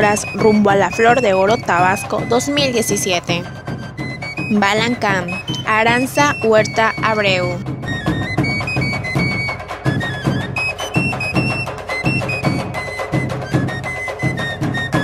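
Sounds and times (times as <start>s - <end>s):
high melody of held notes: 0.0s - 3.5s, 4.2s - 15.0s
steady drum beat: 0.0s - 15.0s.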